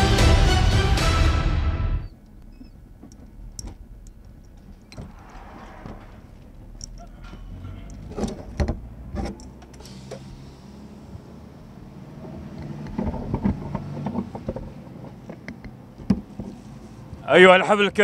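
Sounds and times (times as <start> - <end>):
vehicle engine running: 2.1 - 17.2
clatter: 12.6 - 16.6.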